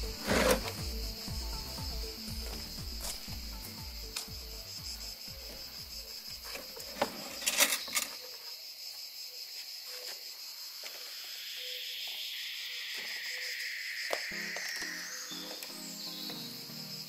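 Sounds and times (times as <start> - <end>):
crickets chirping: 0.0 - 17.0
hiss: 8.8 - 17.0.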